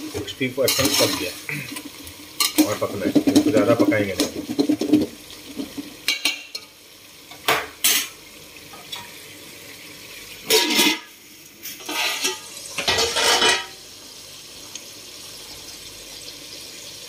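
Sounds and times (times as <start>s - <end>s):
chicken sizzling in a pot: 0.0s - 17.0s
steel lid clanking on a pot: 0.7s - 1.2s, 10.5s - 11.1s, 11.8s - 13.8s.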